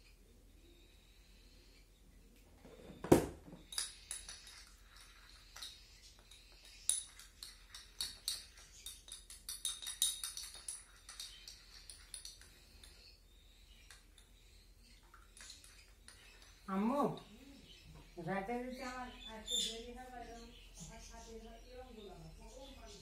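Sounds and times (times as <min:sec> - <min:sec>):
utensil clinking against dish: 0:03.6 - 0:13.1.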